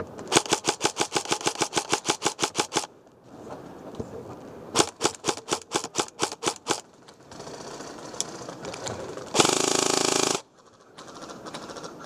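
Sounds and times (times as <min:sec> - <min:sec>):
airsoft gun full-auto burst: 0:00.3 - 0:02.9, 0:04.8 - 0:08.2, 0:09.3 - 0:11.9.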